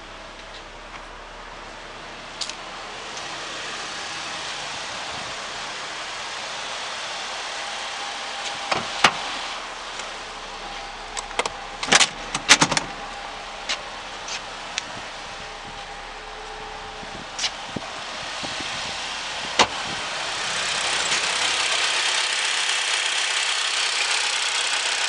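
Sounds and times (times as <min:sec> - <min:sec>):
car engine idling: 0:00.0 - 0:25.0
loud clicks and knocks: 0:11.2 - 0:12.9.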